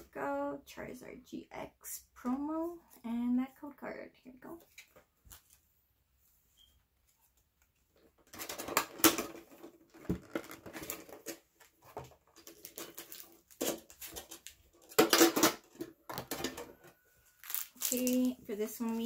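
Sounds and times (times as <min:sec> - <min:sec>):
plastic crinkling and rustling: 0:08.3 - 0:19.0
metal tin clattering: 0:14.8 - 0:16.8.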